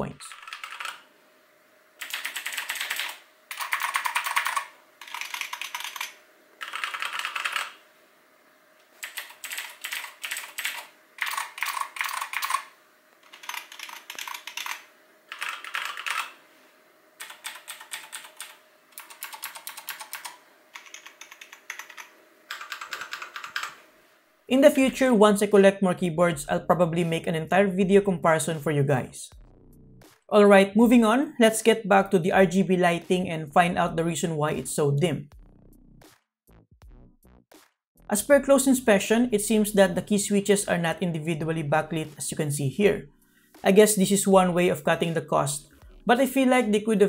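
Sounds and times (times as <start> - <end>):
typing on keyboards: 0.3 - 1.0, 2.0 - 7.8, 9.0 - 16.3, 17.2 - 23.8.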